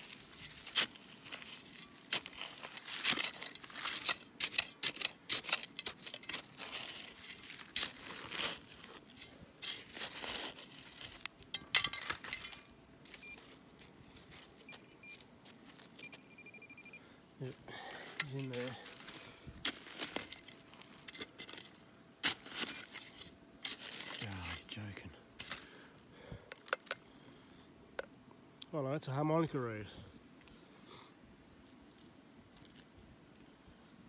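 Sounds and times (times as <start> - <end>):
trowel chopping into gritty soil: 0.0 - 11.2, 18.1 - 24.6
pinpointer short high beeps: 14.7 - 15.2, 16.0 - 17.0.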